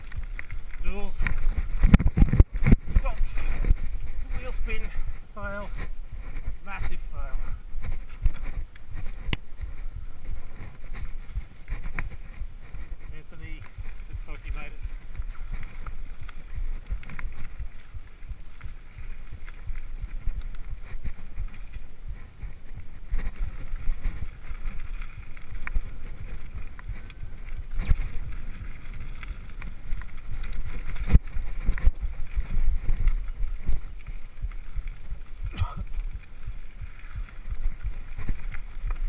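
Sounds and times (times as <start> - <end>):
bike rattling: 0.0 - 39.0
tyres on dirt trail: 0.0 - 39.0
wind on microphone: 0.0 - 39.0.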